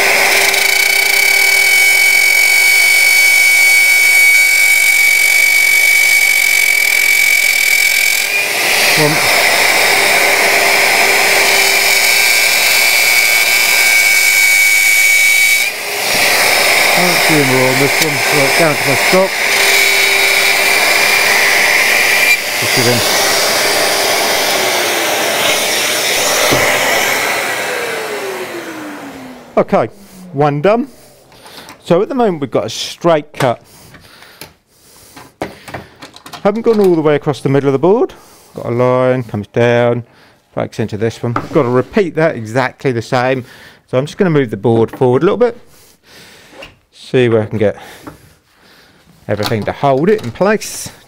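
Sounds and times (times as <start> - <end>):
dust extractor running: 0.0 - 32.3
motor winding down: 0.0 - 32.4
router whining: 0.0 - 32.6.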